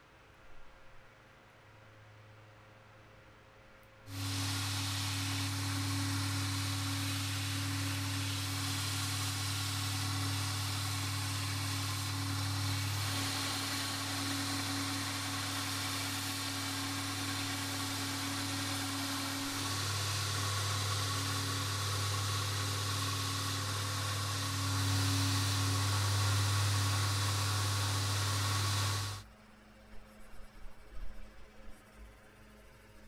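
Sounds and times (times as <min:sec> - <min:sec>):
belt grinder motor hum: 0:04.1 - 0:29.2
belt sanding wood hiss: 0:04.1 - 0:29.2.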